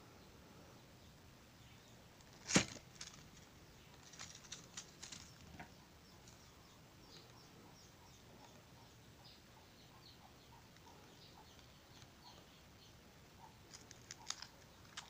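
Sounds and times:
foil and paper crackling: 2.3 - 3.2.

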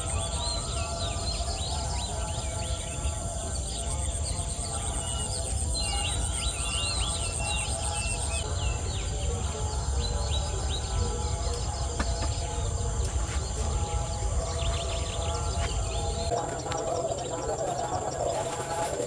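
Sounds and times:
birds chirping: 0.0 - 19.0
high insect drone: 0.0 - 19.0.

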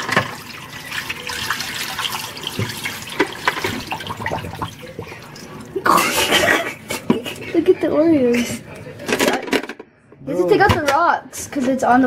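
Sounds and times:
water pouring into a steel sink: 0.0 - 6.7.

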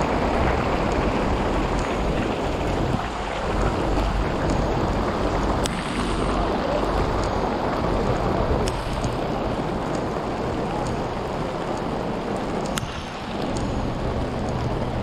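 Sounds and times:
steady rain: 0.0 - 15.0
wind rumble on microphone: 0.0 - 15.0
sharp ticks: 5.3 - 6.3, 8.6 - 15.0.

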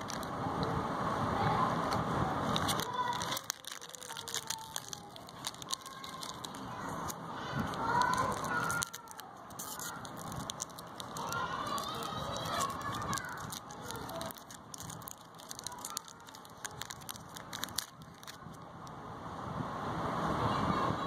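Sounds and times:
candy wrapper crinkling: 0.0 - 0.3, 2.4 - 18.6.

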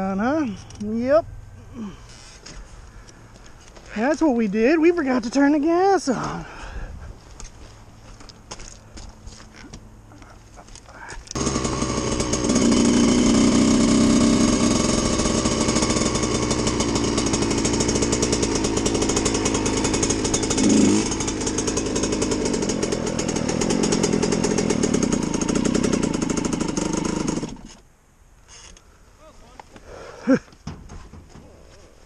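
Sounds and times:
dirt bike engine at low revs: 10.2 - 27.8.

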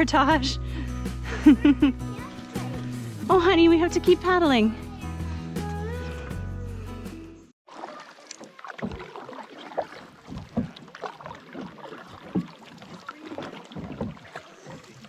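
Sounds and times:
paddle splashes and drips: 2.1 - 3.2, 7.6 - 15.0
paddle knocks: 7.8 - 15.0.

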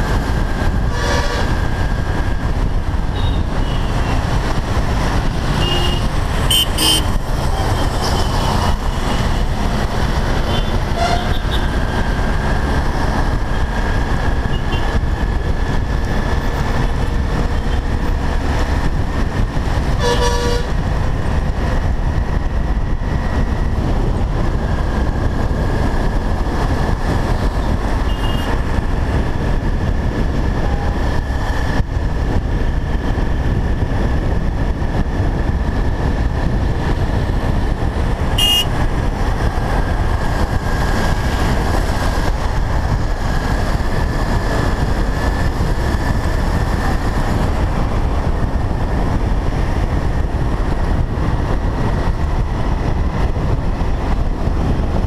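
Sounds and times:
motorcycle engine: 0.0 - 55.0
wind rush: 0.0 - 55.0
vehicle horn toots: 0.9 - 1.5, 3.2 - 3.9, 5.5 - 7.2, 10.5 - 11.7, 20.0 - 20.7, 28.1 - 28.5, 38.4 - 38.8.

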